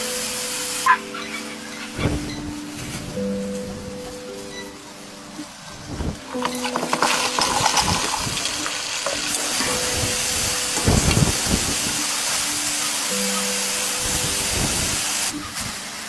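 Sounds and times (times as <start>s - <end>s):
potatoes deep-frying sizzle: 6.0s - 16.0s
wire skimmer in bubbling oil: 6.3s - 11.9s.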